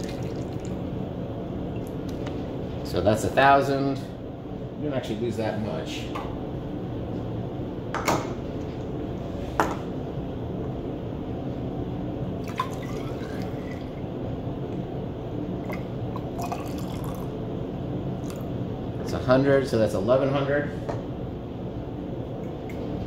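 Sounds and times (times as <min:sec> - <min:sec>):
water trickling and dripping: 0:00.0 - 0:00.8.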